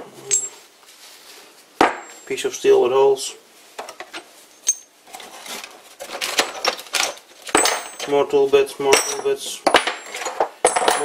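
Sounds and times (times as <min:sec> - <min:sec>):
metal tool bits clinking on wood: 0:00.3 - 0:00.6, 0:04.0 - 0:05.3, 0:06.0 - 0:08.3, 0:08.9 - 0:11.0.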